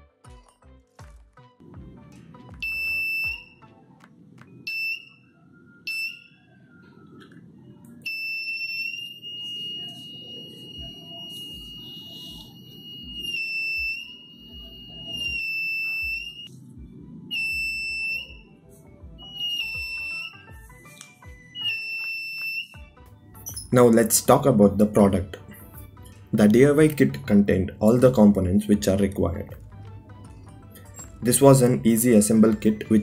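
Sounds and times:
piezo buzzer beeping: 2.6 - 3.6, 8.0 - 16.5, 17.3 - 18.4, 19.2 - 22.8.

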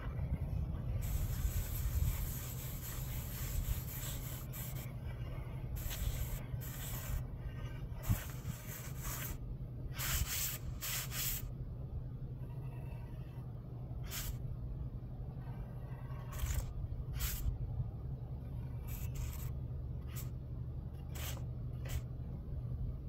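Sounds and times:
low rumble: 0.0 - 10.8, 11.4 - 23.0
plastic trowel scraping stucco: 16.2 - 17.5.

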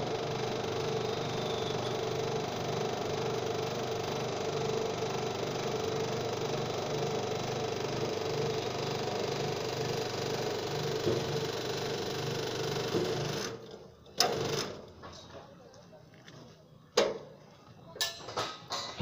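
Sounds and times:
electric hoist motor winding: 0.0 - 14.9.

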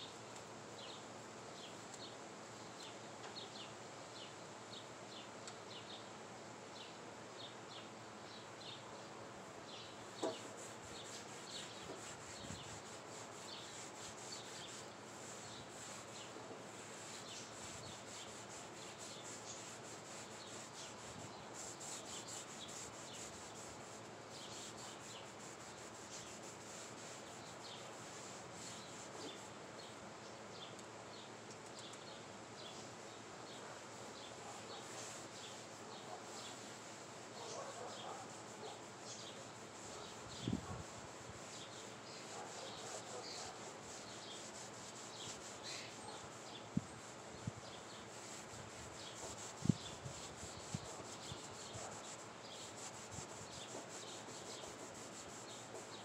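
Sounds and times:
applicator rubbing on wood: 10.2 - 29.4, 34.7 - 46.4, 47.9 - 56.0.

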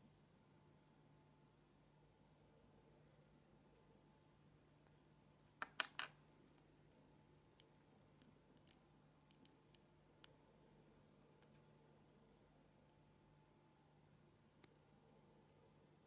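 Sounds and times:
magnet balls clicking: 5.6 - 6.7, 7.6 - 10.4.

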